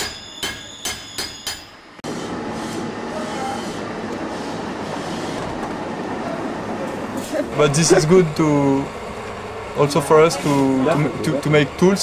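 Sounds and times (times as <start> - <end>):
hammer striking steel die: 0.0 - 1.7.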